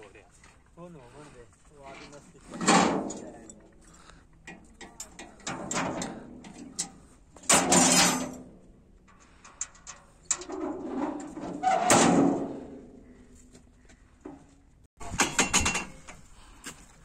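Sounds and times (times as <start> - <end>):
metal ramps scraping clatter: 1.9 - 3.6, 4.8 - 8.7, 9.3 - 13.2, 14.3 - 16.2
metal ramps knocking and clanking: 2.5 - 3.5, 4.5 - 8.6, 9.5 - 13.0, 14.3 - 16.2.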